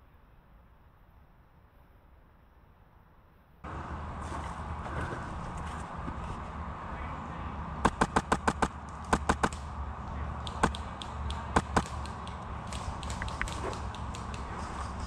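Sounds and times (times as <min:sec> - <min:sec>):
airsoft gunshots: 0:07.8 - 0:09.7, 0:10.5 - 0:14.6.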